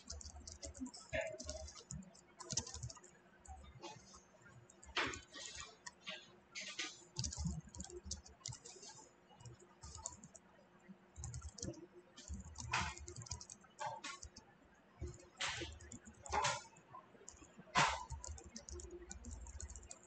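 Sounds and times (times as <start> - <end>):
typing on keyboard: 0.0 - 10.4, 11.2 - 20.0.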